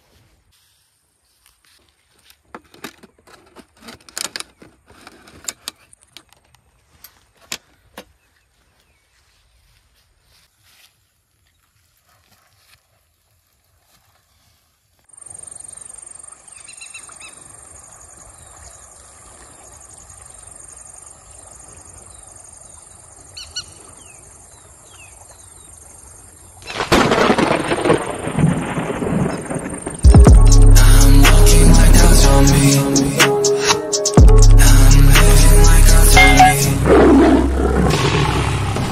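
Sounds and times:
thunder crash and rumble: 26.8 - 30.5.

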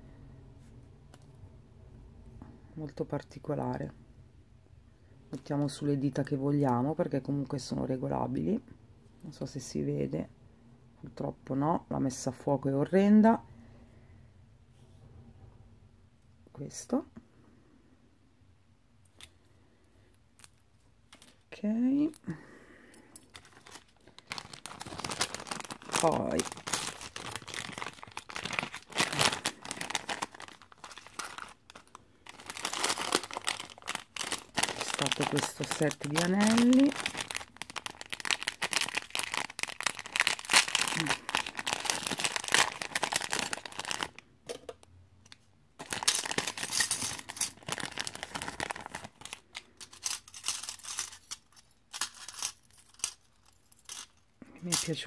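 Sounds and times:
plastic bags crinkling: 23.2 - 44.8, 45.8 - 55.0.

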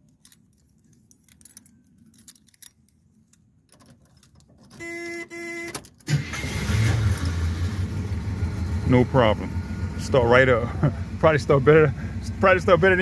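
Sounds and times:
keys jingling in ignition: 0.0 - 7.2
car engine starting and running: 5.8 - 13.0.

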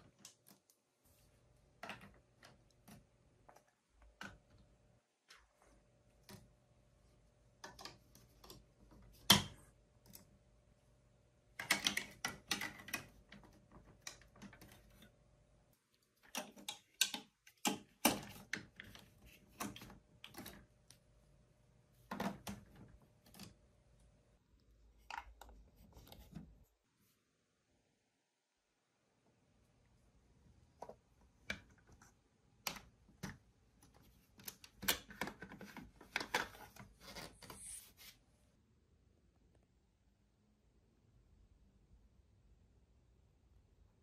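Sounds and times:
plastic blocks clicking together: 16.2 - 20.6.

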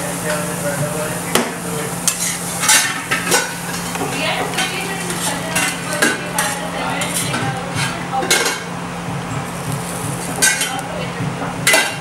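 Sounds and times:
steady low hum: 0.0 - 12.0
metal spatula scraping griddle: 2.0 - 8.6, 9.6 - 10.8.

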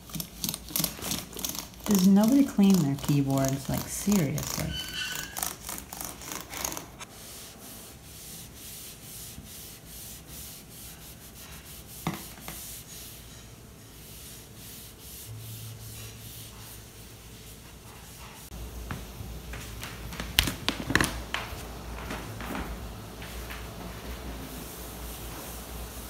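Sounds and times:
cloth rubbing on keyboard: 0.8 - 13.3.

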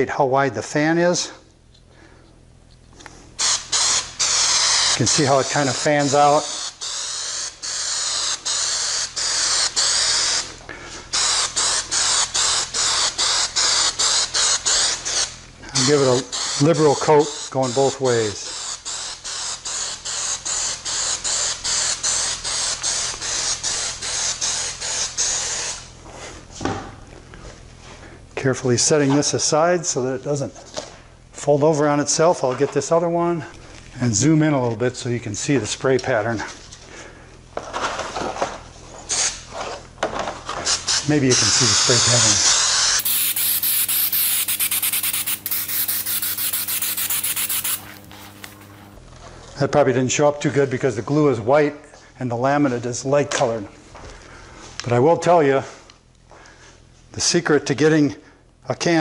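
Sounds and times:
aerosol can hissing: 3.4 - 10.4, 11.1 - 25.9, 41.8 - 48.9
spray spitting crackle: 43.0 - 48.9.

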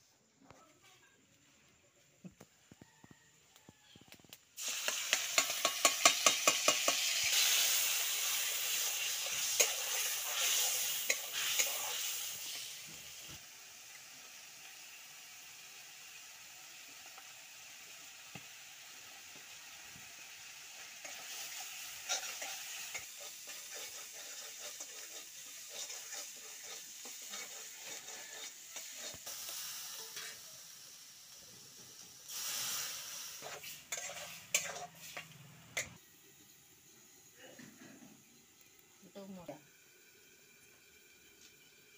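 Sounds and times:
masala sizzling in a pan: 0.0 - 41.9
spatula scraping a pan: 4.6 - 12.8, 20.9 - 30.5, 32.3 - 36.0
spatula clinking on metal pan: 5.1 - 7.0.

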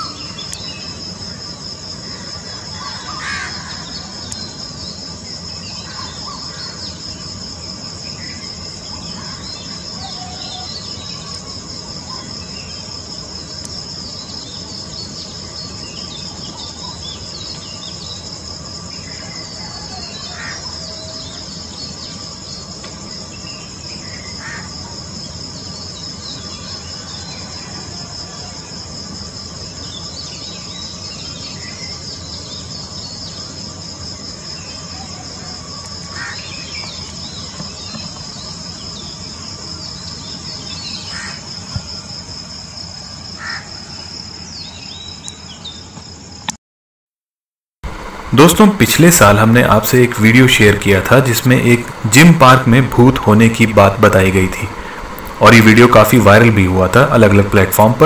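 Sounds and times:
bird chirps: 0.0 - 1.0
crickets chirring: 0.0 - 46.6, 47.8 - 58.0.

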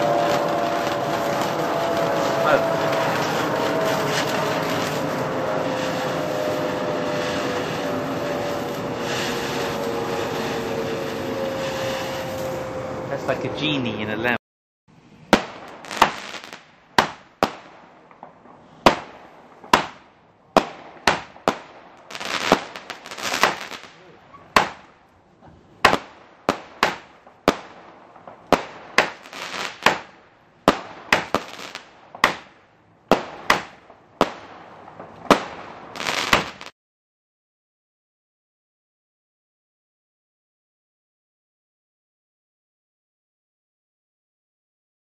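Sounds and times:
fireworks crackle: 0.0 - 12.7, 15.0 - 36.8
fireworks bangs: 0.0 - 13.8, 15.2 - 36.7.

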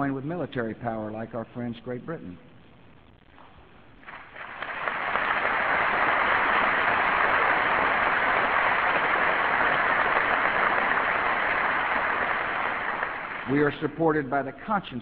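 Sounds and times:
audience applauding: 4.0 - 13.8.

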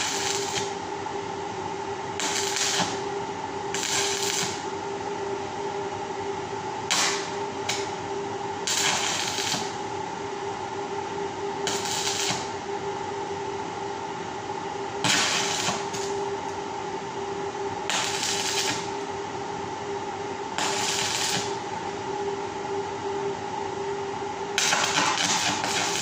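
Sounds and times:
sizzling welding arc bursts: 0.0 - 0.8, 2.2 - 3.0, 3.7 - 4.7, 6.9 - 7.9, 8.6 - 9.8, 11.6 - 12.6, 15.0 - 16.2, 17.9 - 19.0, 20.6 - 21.6, 24.6 - 26.0
steady hum: 0.0 - 26.0.

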